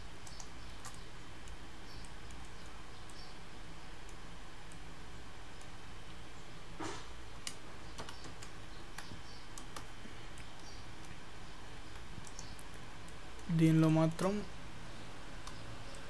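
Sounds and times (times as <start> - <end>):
steady low hum: 0.0 - 16.0
mouse and keyboard clicks: 0.2 - 3.3, 6.9 - 11.2, 11.8 - 13.6, 15.4 - 16.0.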